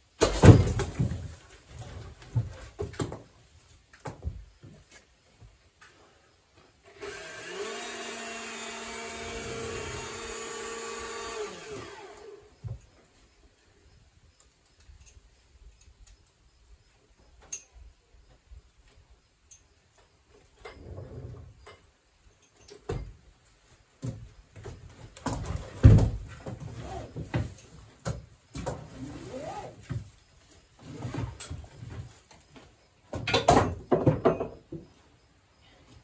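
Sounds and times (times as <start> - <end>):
wood clattering: 0.2 - 3.4
wood clunking on wooden bench: 33.1 - 34.9.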